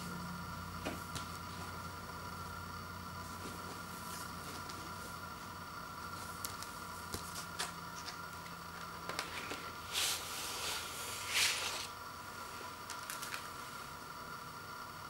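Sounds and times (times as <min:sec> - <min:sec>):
paper sleeve rustling: 0:09.1 - 0:11.9
vinyl record sliding out: 0:09.1 - 0:11.9.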